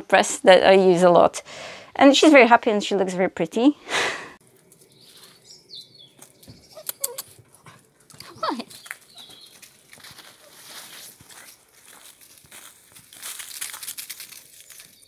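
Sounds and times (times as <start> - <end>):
footsteps in dry leaves: 4.7 - 5.5, 8.3 - 15.0
small dog whining: 6.7 - 7.4.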